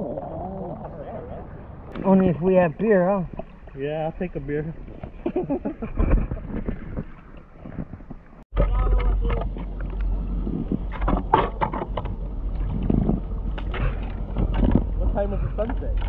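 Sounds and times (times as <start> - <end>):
creek water splashing and rushing: 0.0 - 8.4
wind rumble on microphone: 0.0 - 16.0.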